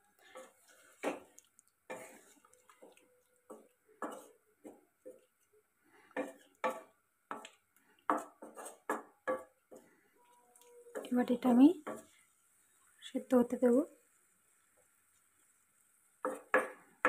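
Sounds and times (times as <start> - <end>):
wooden spatula scraping pan: 0.0 - 5.3, 6.1 - 9.9, 10.9 - 12.3.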